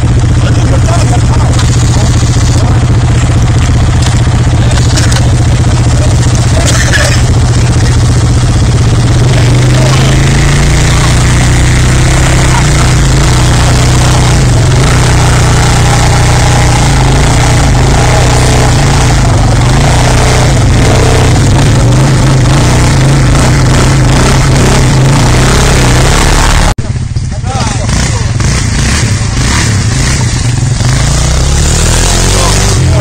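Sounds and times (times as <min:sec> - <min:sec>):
quad bike engines idling: 0:00.0 - 0:33.0.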